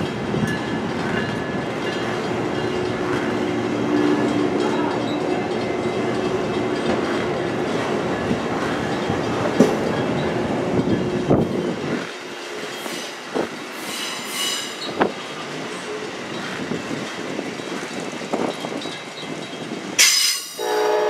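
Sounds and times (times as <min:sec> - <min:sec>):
train coaches rumbling past: 0:00.0 - 0:21.0
high-pitched wheel squeal: 0:13.8 - 0:14.9.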